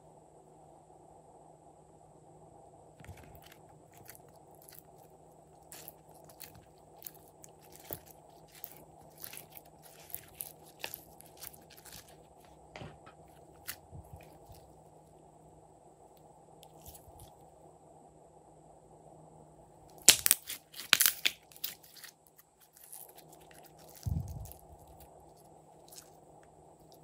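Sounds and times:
slime sticky clicks and pops: 20.0 - 21.8.

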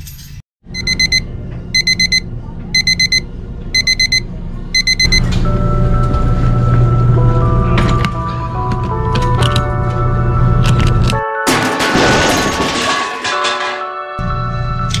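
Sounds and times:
washer beeping alarm: 0.7 - 7.4
background music: 5.3 - 11.8.

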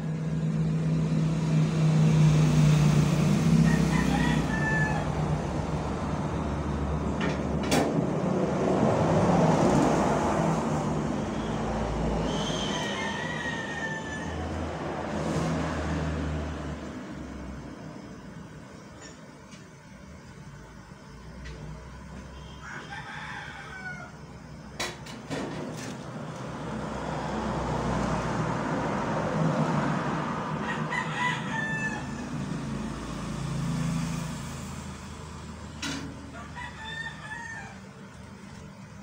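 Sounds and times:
rooster crowing: 2.7 - 7.0, 10.1 - 16.7, 22.3 - 24.6, 26.5 - 34.0, 36.0 - 38.4.

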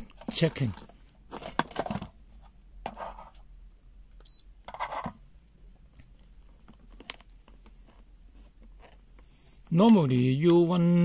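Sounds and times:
multimeter beep: 4.2 - 4.5.

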